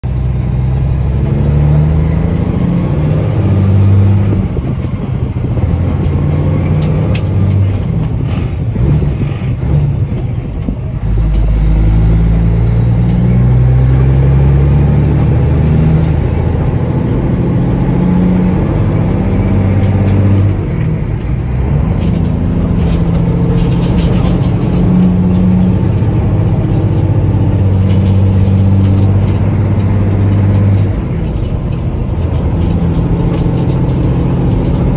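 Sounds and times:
truck diesel engine pulling hard: 0:00.0 - 0:34.9.

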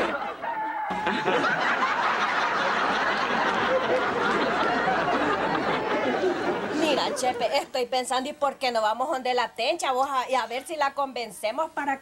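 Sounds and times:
people laughing and chuckling: 0:00.0 - 0:07.7.

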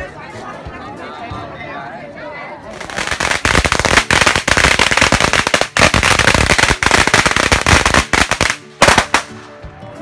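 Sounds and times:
firecrackers banging: 0:02.8 - 0:09.4.

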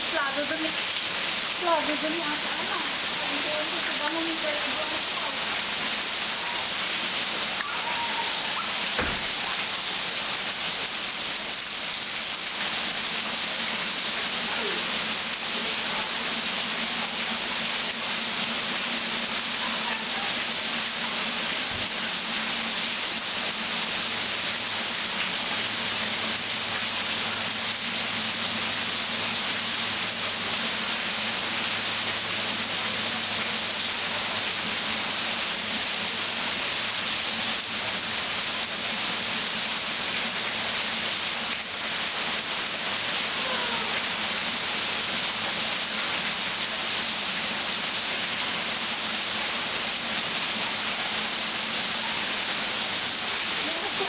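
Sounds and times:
heavy rain on water: 0:00.0 - 0:54.0
knock: 0:09.0 - 0:09.3.

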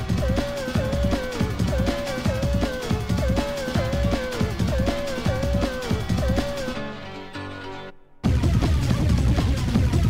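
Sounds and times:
wavering synth lead: 0:00.0 - 0:06.8
drums: 0:00.0 - 0:06.9, 0:08.2 - 0:10.0.

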